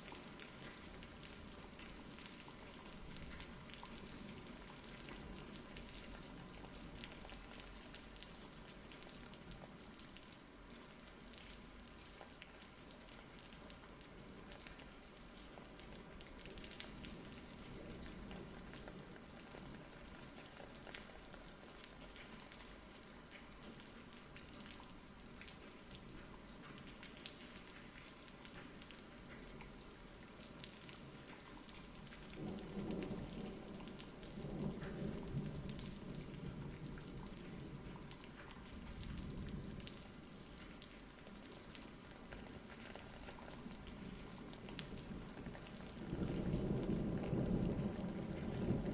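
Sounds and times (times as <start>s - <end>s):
rain pattering: 0.0s - 48.9s
thunder rumble: 44.1s - 48.9s.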